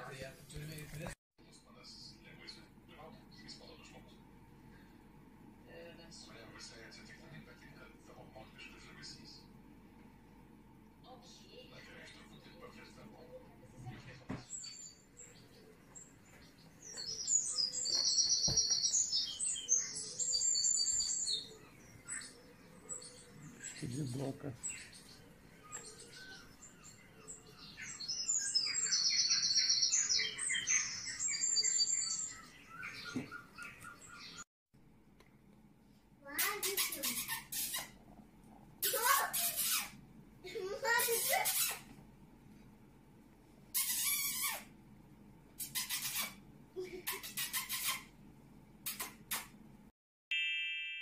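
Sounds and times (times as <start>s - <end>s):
recorded birdsong chirping: 0.6s - 34.4s, 36.3s - 38.2s, 38.8s - 40.0s, 40.9s - 41.9s, 43.7s - 44.6s, 45.5s - 48.2s
bright ringing chime: 50.3s - 51.0s.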